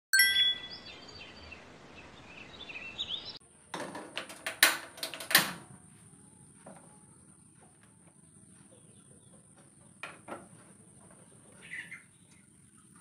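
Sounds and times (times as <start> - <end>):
short ringing chime: 0.2 - 0.9
pans clicking and knocking: 3.8 - 5.7
faint chirping: 5.8 - 13.0.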